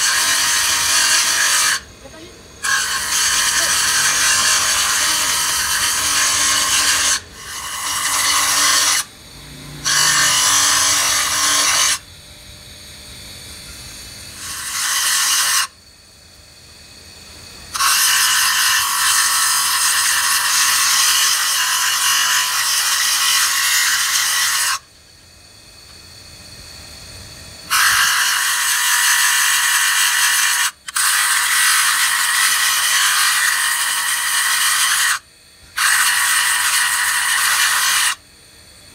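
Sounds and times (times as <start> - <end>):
grinder disc grinding steel: 0.0 - 12.0, 13.7 - 15.8, 17.7 - 24.9, 27.6 - 38.2
grinder disc spinning free: 2.6 - 12.1, 27.7 - 38.2.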